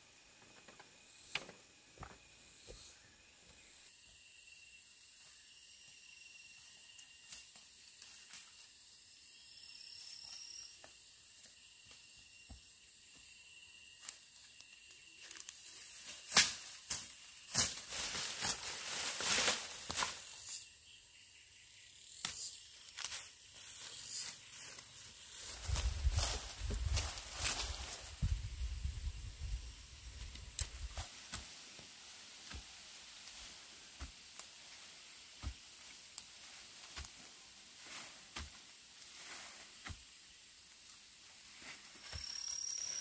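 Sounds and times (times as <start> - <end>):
faint insect hum: 0.0 - 43.0
rustling through ferns and leaves: 14.0 - 20.6, 22.8 - 43.0
hand tool digging into soil: 30.5 - 40.2.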